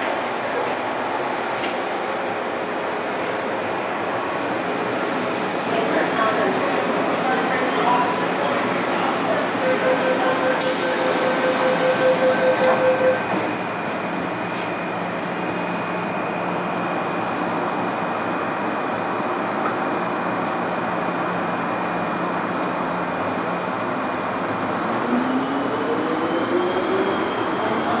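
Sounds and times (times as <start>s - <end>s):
short beeps: 9.6s - 13.4s.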